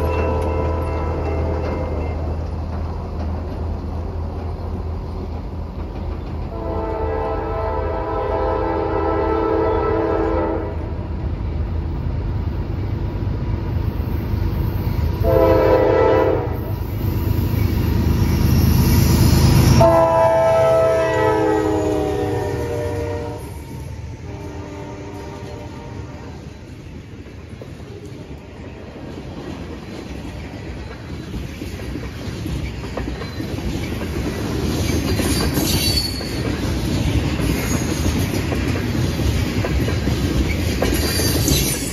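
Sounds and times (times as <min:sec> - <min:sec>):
freight cars rolling by: 0:00.0 - 0:07.8, 0:16.6 - 0:41.9
locomotive air horn: 0:06.5 - 0:10.9, 0:15.2 - 0:16.7, 0:19.8 - 0:23.6, 0:24.2 - 0:26.4.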